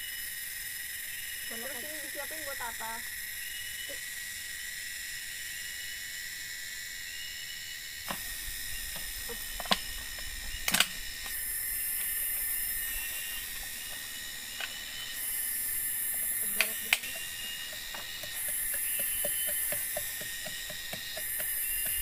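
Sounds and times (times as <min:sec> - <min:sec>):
insects chorus: 0:00.0 - 0:22.0
knocks on bamboo: 0:08.1 - 0:08.3, 0:16.2 - 0:22.0.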